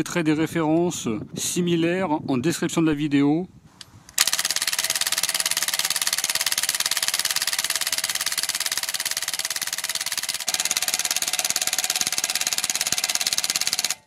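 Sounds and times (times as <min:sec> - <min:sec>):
impact wrench rattling: 0:04.2 - 0:14.0.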